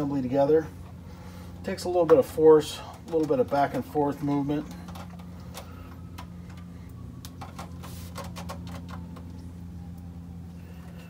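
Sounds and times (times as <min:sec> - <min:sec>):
steady low hum: 0:00.0 - 0:11.0
air filter clicking and tapping: 0:01.9 - 0:10.1.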